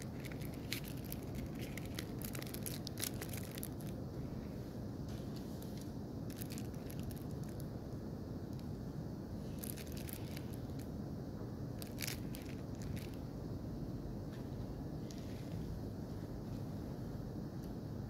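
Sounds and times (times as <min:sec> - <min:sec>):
plastic packaging crinkling: 0:00.0 - 0:04.0, 0:05.6 - 0:07.6, 0:09.5 - 0:10.9, 0:11.8 - 0:13.2
low background rumble: 0:00.0 - 0:18.0.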